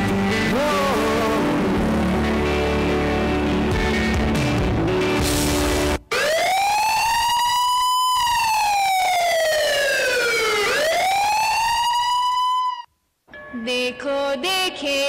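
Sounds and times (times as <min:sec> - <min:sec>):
ambulance siren wailing: 0:06.1 - 0:12.9.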